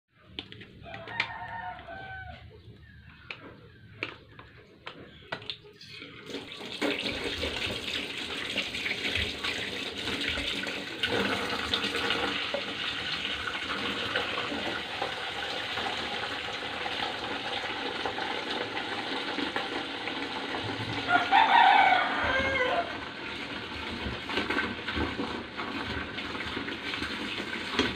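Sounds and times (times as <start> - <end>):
tap water pouring into pot: 5.8 - 27.9.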